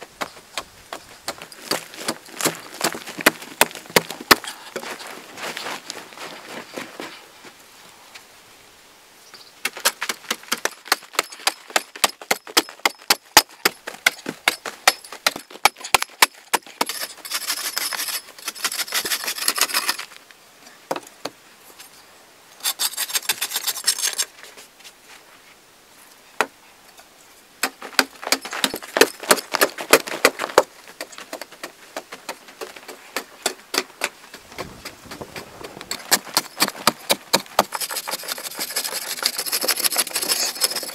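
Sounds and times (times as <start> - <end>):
hoe chopping dry soil: 0.0 - 5.0, 9.6 - 20.0, 27.6 - 40.9.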